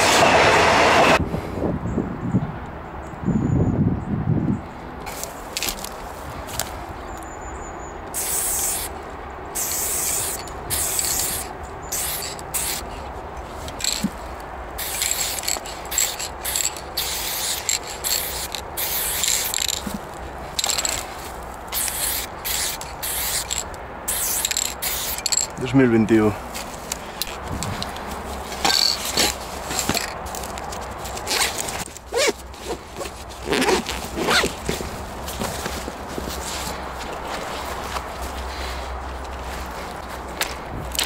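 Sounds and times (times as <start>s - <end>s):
spray paint can hissing: 8.1s - 8.9s, 9.5s - 12.9s, 13.8s - 14.1s, 14.8s - 20.0s, 20.6s - 21.0s, 21.7s - 25.5s.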